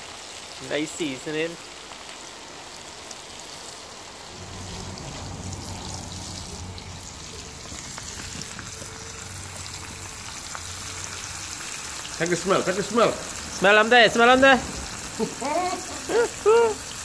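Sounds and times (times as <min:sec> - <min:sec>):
fish frying in hot oil: 0:00.0 - 0:17.0.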